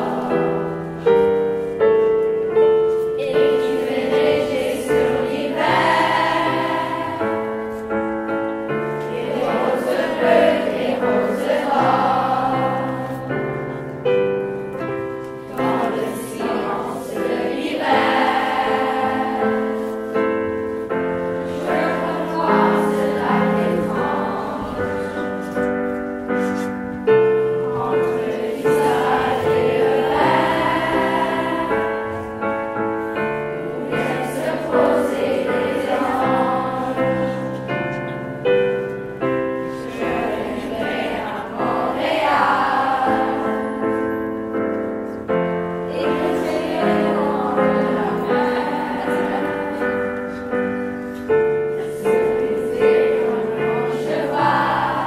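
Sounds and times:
children's choir singing: 0.0 - 55.0
piano accompaniment: 0.0 - 55.0.

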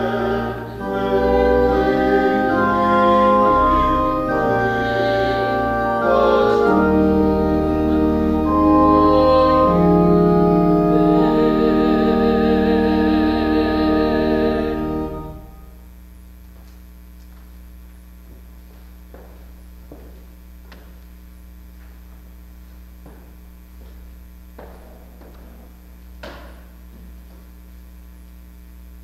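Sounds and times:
woman singing with vibrato: 0.0 - 15.4
electrical mains hum: 0.0 - 29.0
footsteps on wooden steps: 18.2 - 21.1, 21.7 - 27.6
knock: 26.2 - 26.7.

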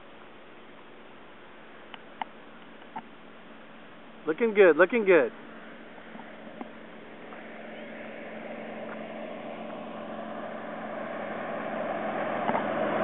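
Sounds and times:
plane piston engine droning: 5.3 - 13.0.

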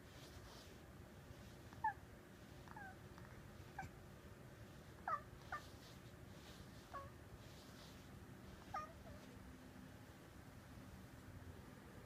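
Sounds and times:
cat chirping: 2.6 - 4.0, 5.0 - 6.0, 8.5 - 9.3.

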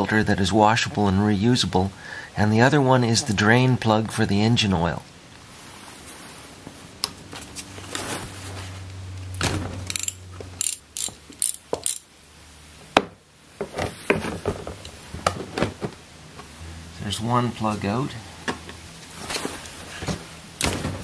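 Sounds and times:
socket ratchet clicking: 9.9 - 12.1.

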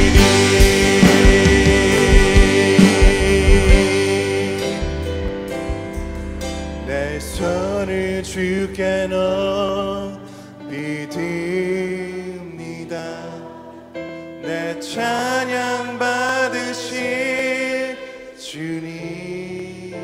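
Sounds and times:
person singing: 0.0 - 5.9, 6.8 - 20.0
heavy bass and drums: 0.0 - 7.4
live praise band music: 0.0 - 20.0.

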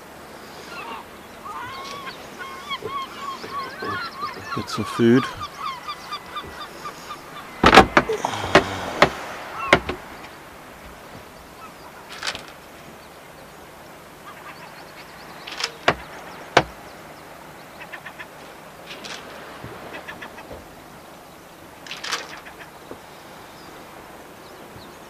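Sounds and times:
faint bird calls: 0.0 - 25.0
knocks of hard objects: 7.6 - 10.0, 15.7 - 16.8.

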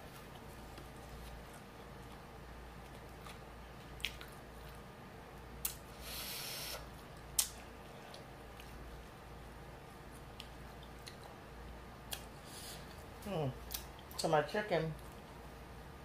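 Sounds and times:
wet chewing smacks: 0.3 - 4.9
breath blown through lips: 6.0 - 6.9.

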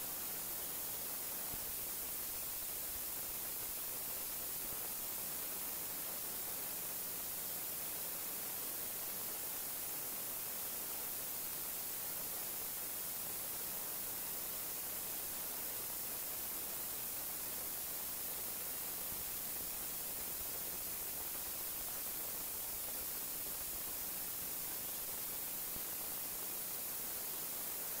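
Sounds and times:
static hiss: 0.0 - 28.0.

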